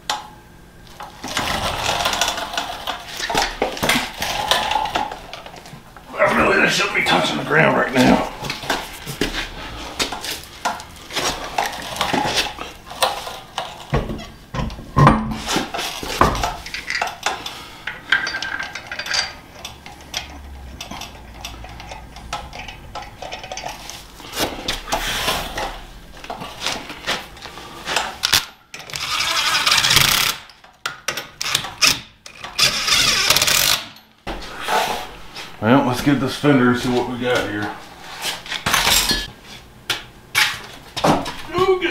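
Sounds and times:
metal clinks and knocks: 16.0s - 24.0s.

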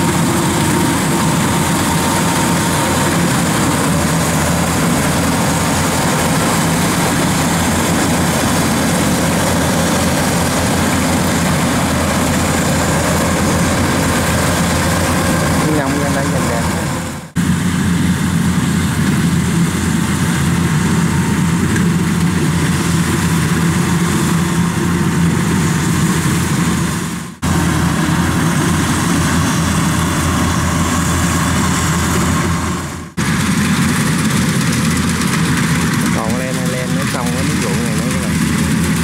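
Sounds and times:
combine harvester running: 0.0s - 39.0s.

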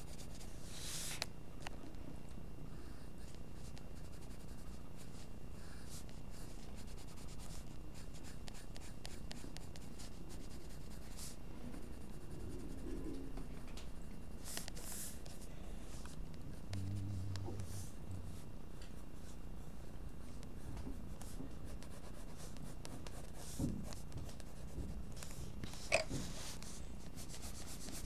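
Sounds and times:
low background hum: 0.0s - 28.0s
pencil scratching on paper: 2.8s - 13.1s, 19.2s - 28.0s.

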